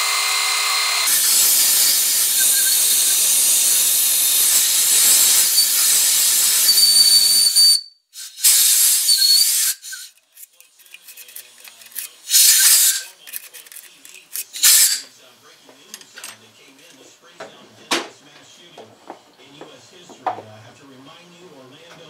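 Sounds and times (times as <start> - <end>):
compressed air blow gun hissing: 8.2 - 10.1.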